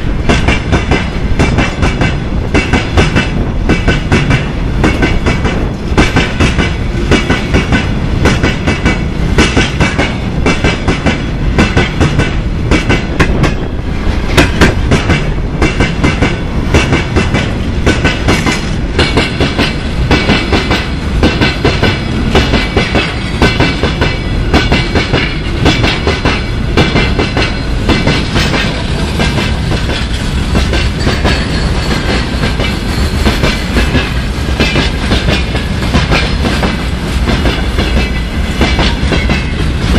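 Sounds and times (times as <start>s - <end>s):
train wheels clattering over rail joints: 0.0s - 39.9s
high metallic ringing: 30.1s - 33.6s.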